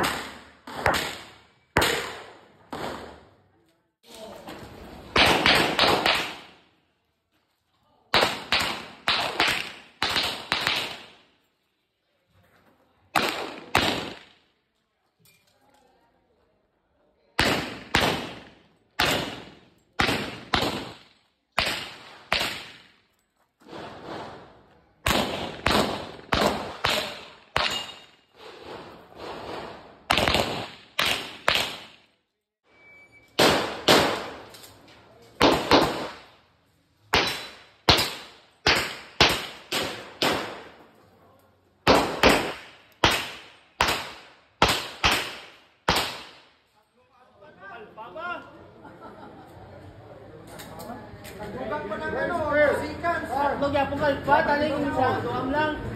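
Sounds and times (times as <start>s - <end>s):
handgun shots: 30.1s - 32.0s, 37.1s - 40.7s.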